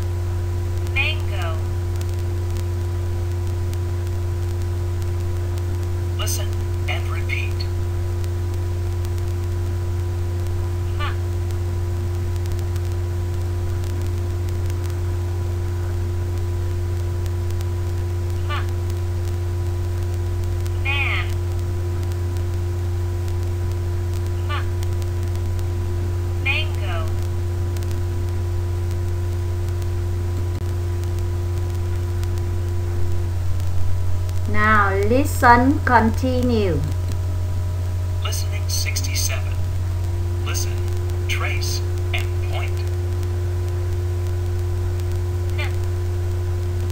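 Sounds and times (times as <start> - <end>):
faint steady tones: 0.0 - 46.9
low electrical hum: 0.0 - 46.9.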